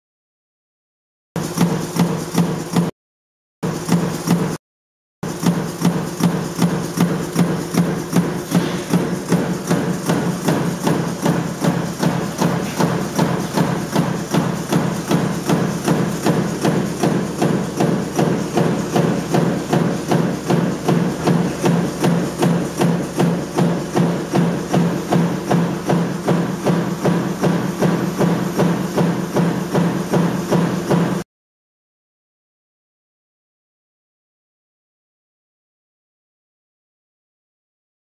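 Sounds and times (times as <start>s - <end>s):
punch press metallic strikes: 5.2s - 31.2s.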